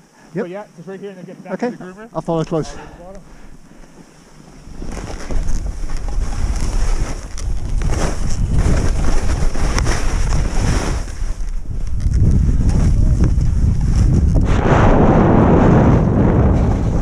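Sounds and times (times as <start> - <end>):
skis hissing and scraping on snow: 0.2 - 15.0
wind buffeting microphone: 4.6 - 17.0.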